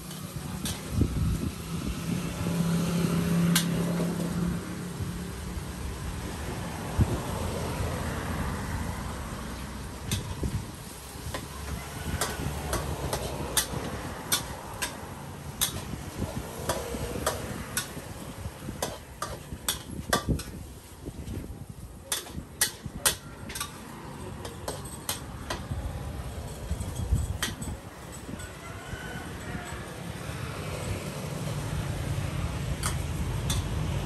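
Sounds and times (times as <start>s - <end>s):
metal spatula clanking on wok: 12.2s - 15.9s, 16.6s - 18.0s, 18.8s - 20.6s, 22.1s - 25.7s.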